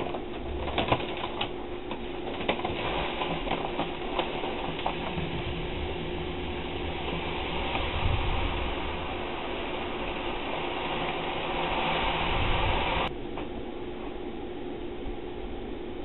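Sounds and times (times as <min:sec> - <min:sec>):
paper bag crinkling: 0:00.0 - 0:11.2
faint steady hum: 0:00.0 - 0:16.0
hiss of pouring grain: 0:02.7 - 0:13.1.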